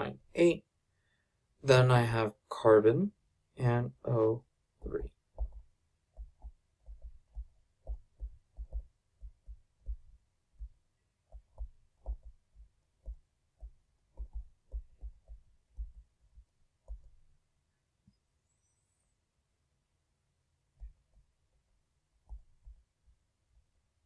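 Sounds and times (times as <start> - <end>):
stylus thumps on tablet: 4.9 - 17.2.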